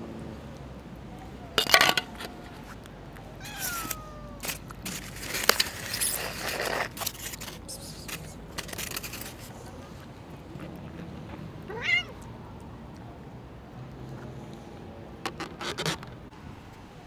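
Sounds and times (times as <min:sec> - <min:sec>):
cats meowing and squabbling: 0:03.4 - 0:05.1, 0:05.8 - 0:08.4, 0:11.6 - 0:12.2.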